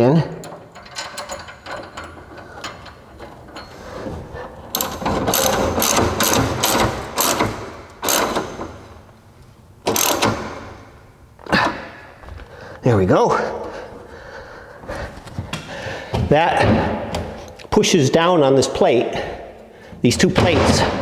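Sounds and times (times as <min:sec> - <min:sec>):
ratchet wrench clicking: 0:04.8 - 0:08.5.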